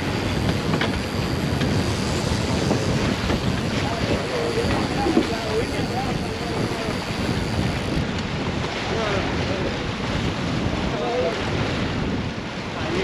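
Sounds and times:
sea water washing: 0.0s - 13.0s
wind buffeting microphone: 0.0s - 13.0s
faint voices: 3.7s - 7.5s.

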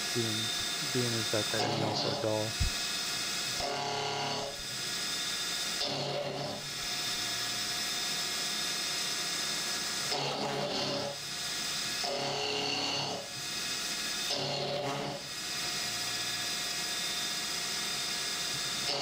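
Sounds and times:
coolant hissing: 0.0s - 12.2s
milling machine cutting steel whine: 0.0s - 19.0s.

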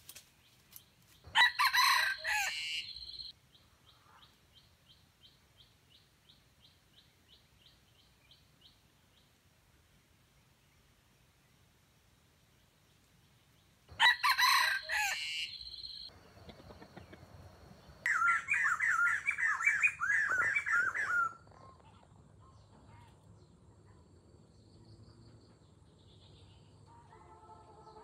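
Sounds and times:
bird chirping calls: 0.3s - 9.3s, 13.4s - 22.1s
rooster crowing: 1.3s - 3.1s, 13.9s - 15.6s.

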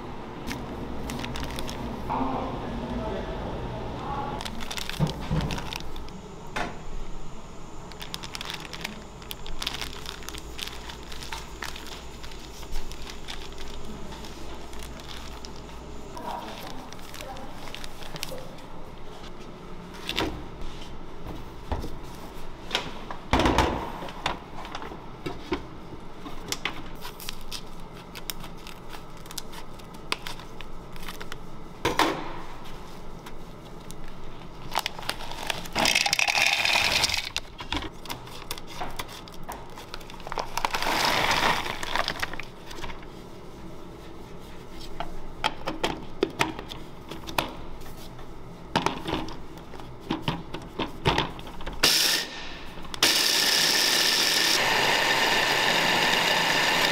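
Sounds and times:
plastic packaging crinkling: 0.5s - 2.0s, 4.4s - 6.2s, 7.7s - 18.6s, 27.0s - 31.4s, 33.6s - 43.1s.

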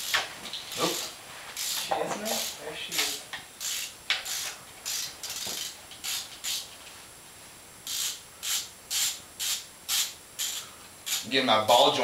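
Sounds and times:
ratchet wrench clicking: 0.0s - 1.8s, 3.6s - 6.6s, 7.8s - 11.3s.

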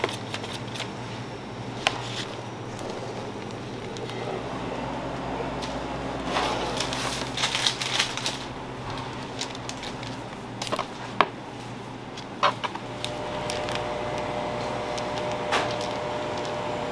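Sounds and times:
low hum of kitchen equipment: 0.0s - 16.9s.

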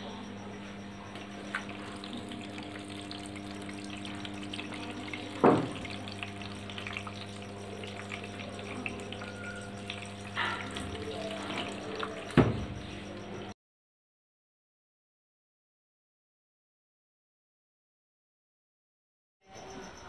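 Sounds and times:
machine hum: 0.0s - 13.6s
water running into washing machine: 1.2s - 13.4s.

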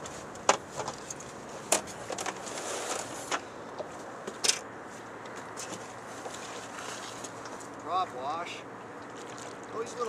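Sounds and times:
knocks and clatters on a boat: 0.0s - 2.5s, 3.2s - 7.9s.

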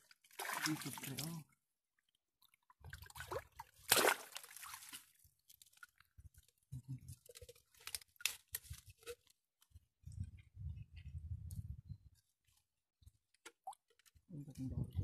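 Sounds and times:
branches rustling through water: 0.0s - 1.4s, 2.8s - 10.1s
river water sloshing: 0.0s - 1.4s, 2.5s - 6.1s.

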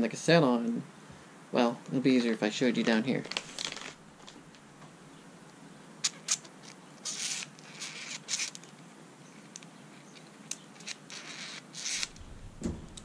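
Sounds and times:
small sharp clicks: 9.4s - 13.0s.

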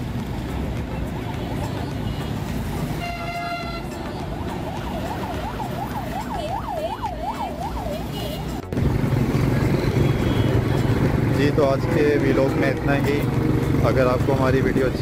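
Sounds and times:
street traffic rumble: 0.0s - 15.0s
emergency vehicle siren wailing: 2.6s - 8.2s
vehicle horn: 3.0s - 4.0s, 9.7s - 11.1s.

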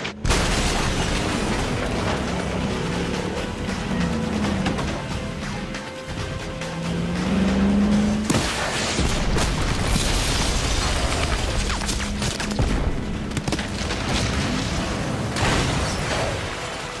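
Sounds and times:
debris crashing: 0.0s - 5.2s, 8.3s - 17.0s.

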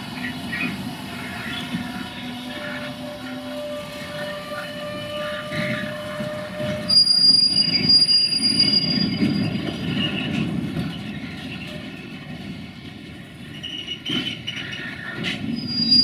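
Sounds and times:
train wheels rumbling: 0.0s - 16.0s
wheel squeal: 1.4s - 11.6s, 13.5s - 16.0s.

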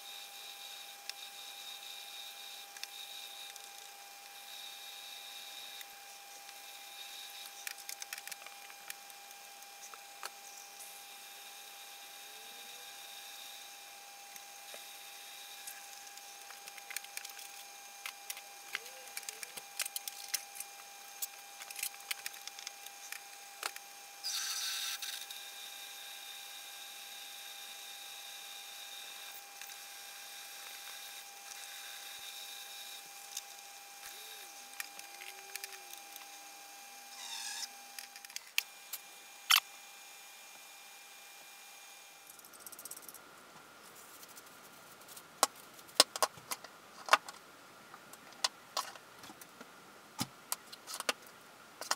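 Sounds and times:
drill scraping metal: 9.6s - 36.4s.

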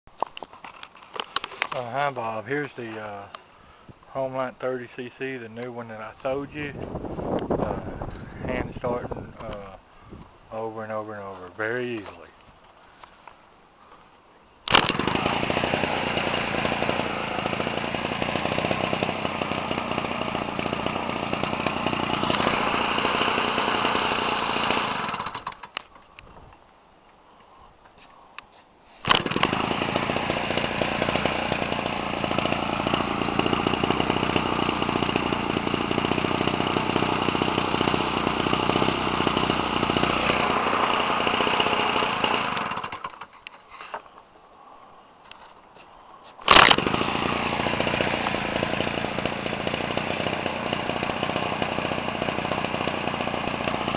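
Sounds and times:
small two-stroke engine running: 14.7s - 25.7s, 29.0s - 43.3s, 46.5s - 53.9s.

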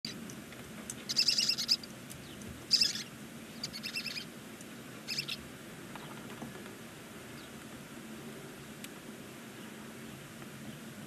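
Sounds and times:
owl chittering: 1.1s - 1.9s, 2.7s - 4.3s, 5.0s - 5.4s.

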